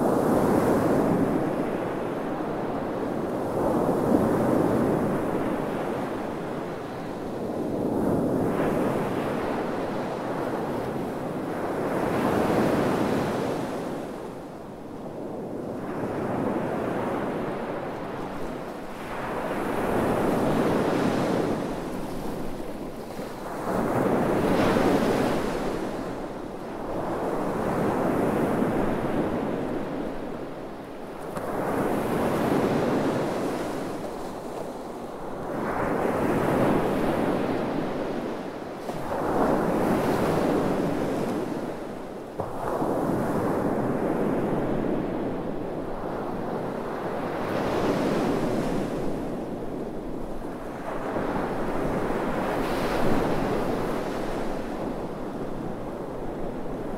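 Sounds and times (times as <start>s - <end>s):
waves breaking on sandy beach: 0.0s - 56.9s.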